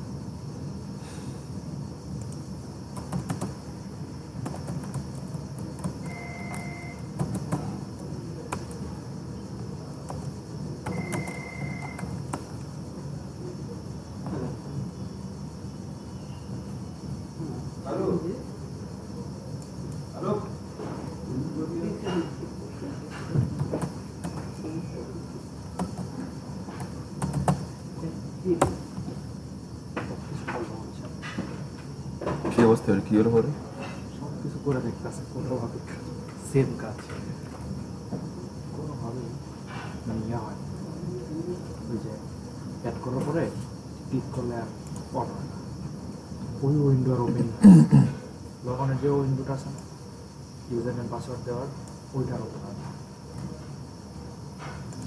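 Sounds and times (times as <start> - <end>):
low background hum: 0.0 - 55.0
low background noise: 0.0 - 55.0
keyboard keys clicking: 3.0 - 3.6, 4.4 - 7.7, 10.0 - 12.7, 26.8 - 27.6.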